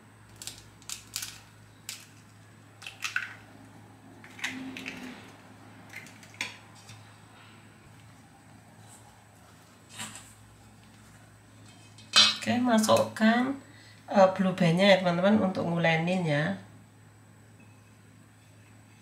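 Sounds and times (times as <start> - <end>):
eggshell cracking: 0.3 - 3.5, 5.9 - 6.9.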